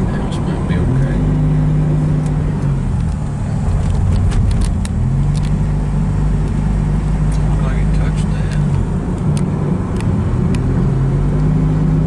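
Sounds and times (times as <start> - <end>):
car engine: 0.0 - 12.0
road noise inside car: 0.0 - 12.0.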